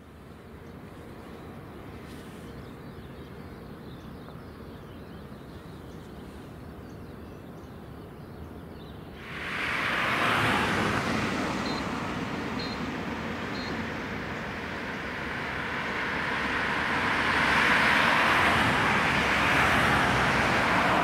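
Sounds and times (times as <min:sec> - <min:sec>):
distant low airport rumble: 0:09.0 - 0:21.0
jet engine roar: 0:09.2 - 0:21.0
faint chirping: 0:13.5 - 0:13.8.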